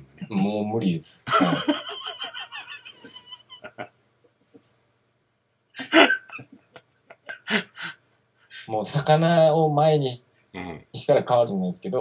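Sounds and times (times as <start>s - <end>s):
men laughing: 1.3s - 4.0s, 5.8s - 8.0s.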